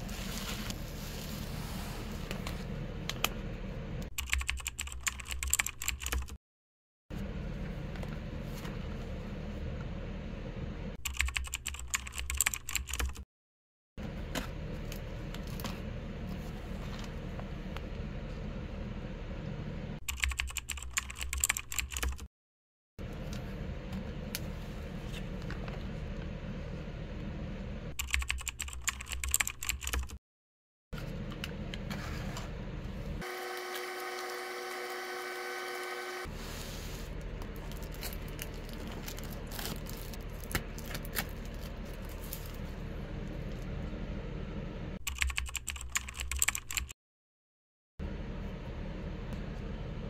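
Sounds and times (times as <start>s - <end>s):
snack pouches crinkling: 37.4s - 42.6s.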